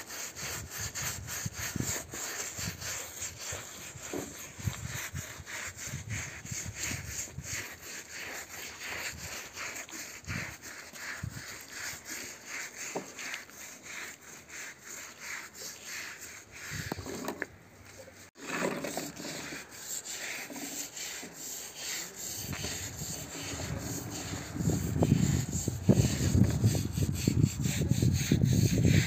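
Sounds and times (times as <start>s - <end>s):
brush scrubbing wet carpet: 0.0s - 17.4s, 18.0s - 29.0s
toy truck wheels rolling on concrete: 18.4s - 29.0s.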